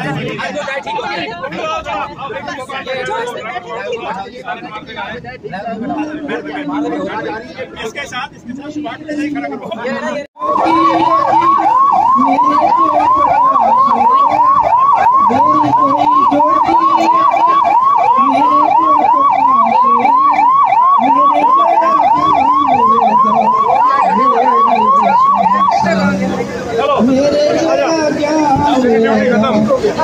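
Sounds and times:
ambulance siren yelping: 10.4s - 26.4s.

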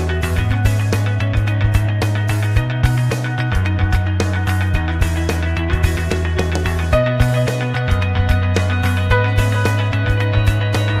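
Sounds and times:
rock music with guitar: 0.0s - 11.0s.

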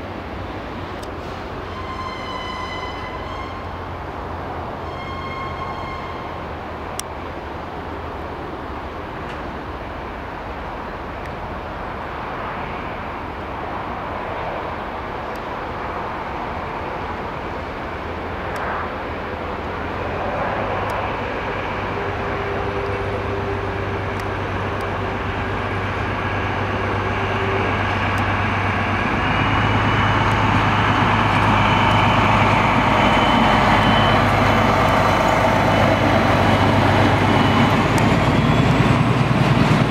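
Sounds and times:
diesel locomotive engine: 0.0s - 39.9s
steady whine: 15.2s - 39.9s.

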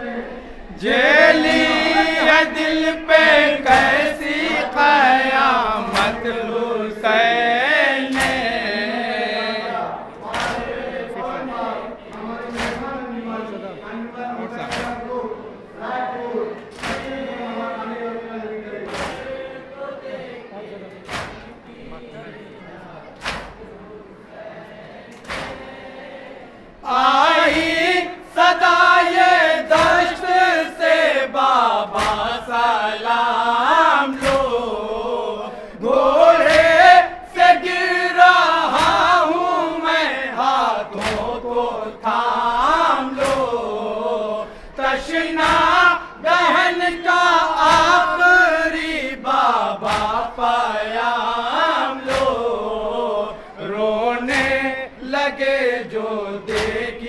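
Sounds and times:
men chanting: 0.0s - 57.0s
sharp smacks: 12.5s - 12.9s, 16.7s - 17.1s, 18.9s - 19.3s, 21.1s - 21.5s, 23.2s - 23.6s, 25.2s - 25.7s, 32.0s - 32.4s, 41.0s - 41.4s, 49.8s - 50.3s, 52.0s - 52.4s, 56.5s - 56.9s.

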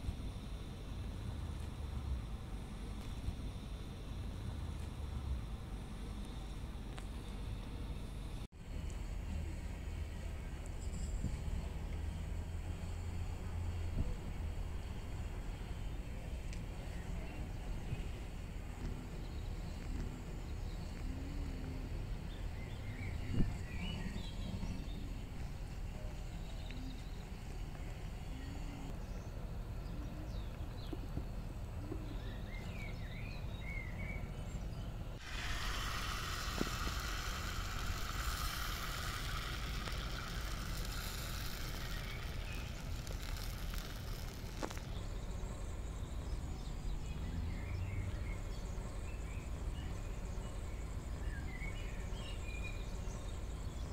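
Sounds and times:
steady hiss: 0.0s - 30.3s, 35.1s - 46.9s.

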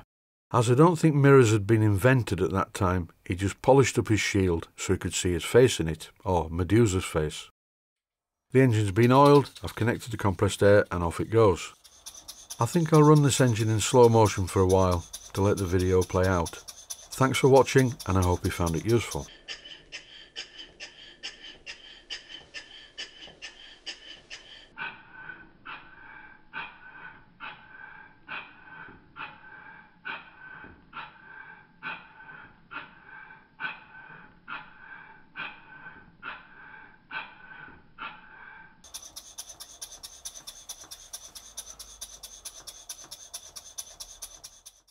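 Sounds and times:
steam engine exhaust puffing: 8.6s - 24.8s, 38.9s - 44.9s.

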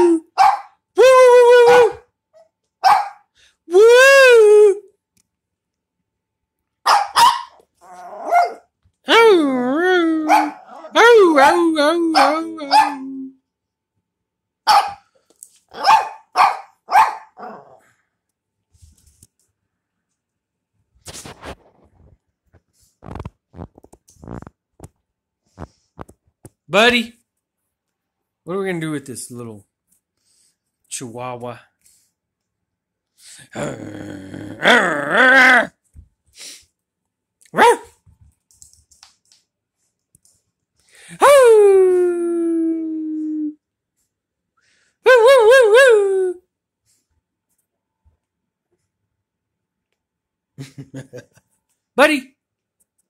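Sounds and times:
small dog barking: 0.2s - 0.8s, 2.8s - 3.3s, 6.8s - 8.7s, 10.2s - 13.2s, 14.7s - 15.1s, 15.7s - 17.8s, 37.5s - 38.0s
small dog grumbling: 33.5s - 35.7s.

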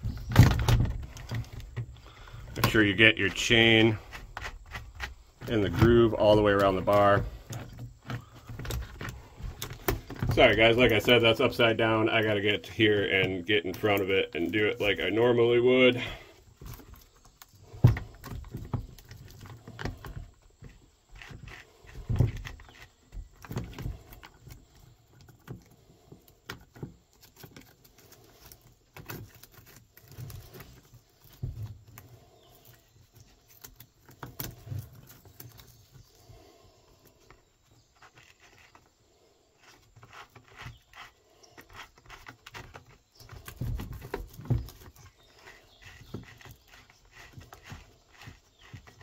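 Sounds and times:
gloves rubbing: 27.8s - 49.0s.

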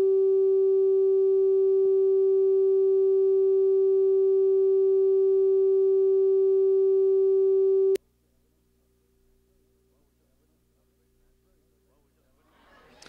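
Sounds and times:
electronic test tone: 0.0s - 8.0s.

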